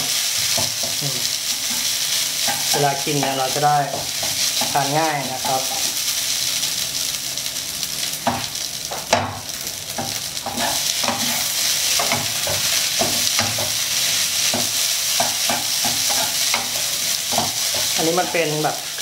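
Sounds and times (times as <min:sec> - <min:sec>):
rice sizzling in a frying pan: 0:00.0 - 0:19.0
wooden spatula scraping a pan: 0:10.5 - 0:19.0.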